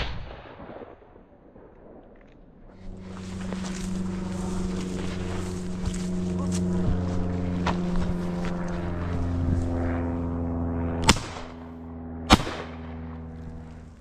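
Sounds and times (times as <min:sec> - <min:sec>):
engine-like hum: 0:02.7 - 0:14.0
shotgun shots: 0:11.0 - 0:11.6, 0:12.3 - 0:13.1.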